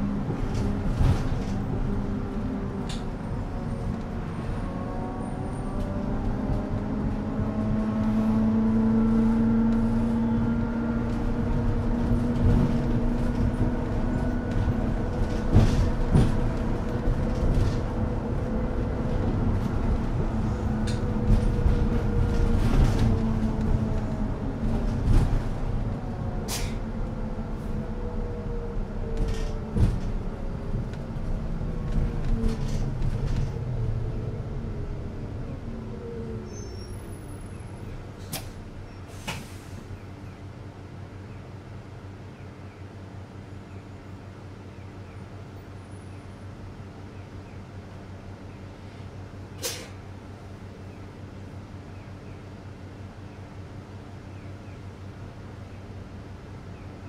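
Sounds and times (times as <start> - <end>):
bus machinery hum: 0.0 - 57.0.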